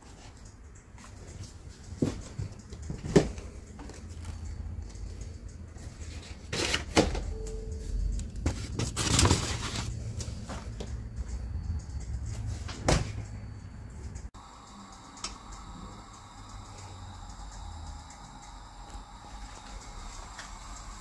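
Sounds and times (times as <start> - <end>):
plastic bags rustling: 8.5 - 10.0.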